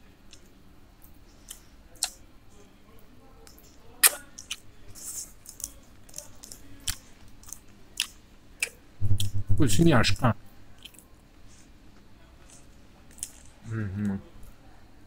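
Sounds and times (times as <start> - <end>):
man chewing: 3.6 - 9.4, 12.4 - 14.2.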